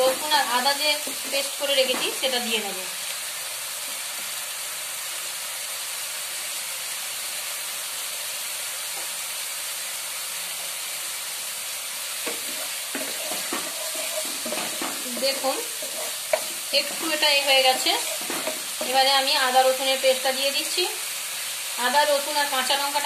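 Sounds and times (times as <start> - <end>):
onion paste sizzling in oil: 0.0 - 23.0
wooden spatula scraping pan: 12.3 - 19.1.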